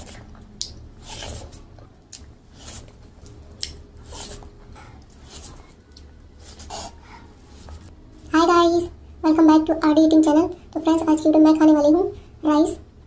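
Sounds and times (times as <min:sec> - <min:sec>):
person chewing food: 0:00.0 - 0:07.9.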